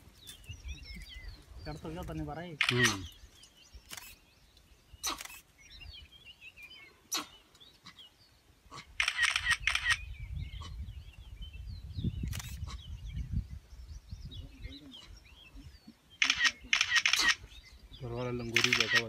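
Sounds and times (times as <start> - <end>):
faint birds chirping: 0.0 - 19.0
camera shutter clicks: 2.6 - 3.1, 9.0 - 10.0, 12.3 - 12.6, 16.2 - 17.4, 18.5 - 19.0.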